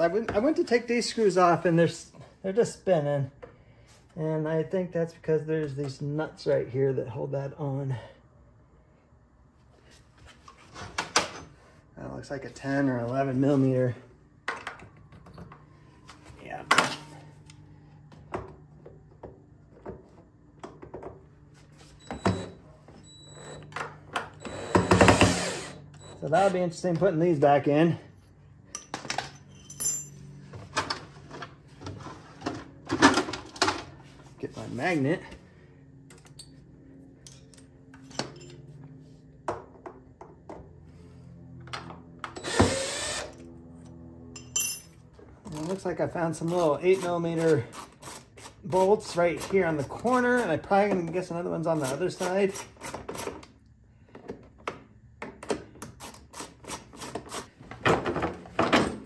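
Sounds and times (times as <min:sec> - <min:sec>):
power drill-driver running: 0:24.4 - 0:26.3, 0:42.4 - 0:43.5
tools clicking and tapping: 0:28.7 - 0:29.8.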